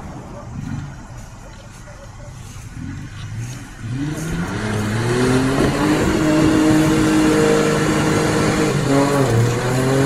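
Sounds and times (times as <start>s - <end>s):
tyres churning through mud: 0.0s - 10.0s
engine revving hard: 2.7s - 10.0s.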